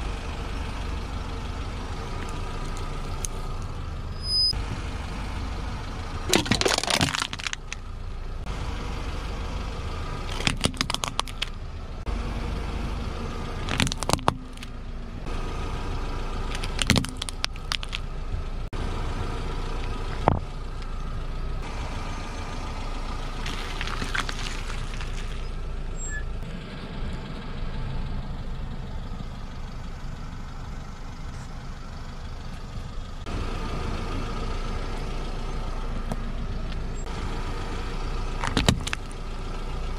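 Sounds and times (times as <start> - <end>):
car engine humming: 0.0 - 39.9
tyre crushing objects: 6.3 - 7.8, 10.3 - 11.5, 13.6 - 14.7, 16.5 - 18.0, 23.4 - 25.4, 38.4 - 39.1.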